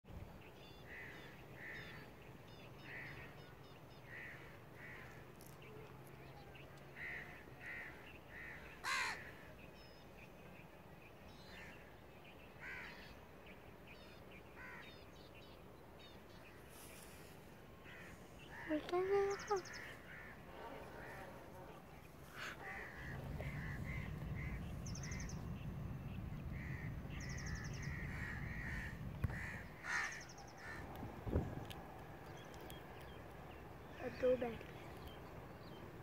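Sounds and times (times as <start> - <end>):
crows cawing: 4.0 - 5.2, 6.9 - 9.5, 12.6 - 13.1, 14.6 - 14.9, 17.8 - 21.4, 22.2 - 25.6, 26.5 - 30.9.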